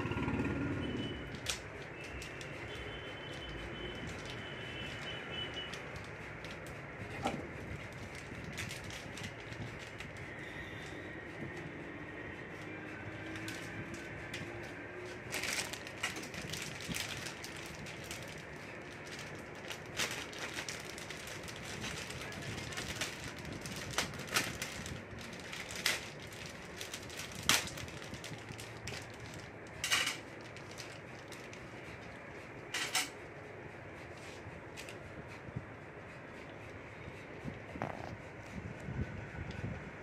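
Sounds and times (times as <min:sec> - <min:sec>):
plastic bag crinkling: 0:07.5 - 0:10.4, 0:15.1 - 0:31.8.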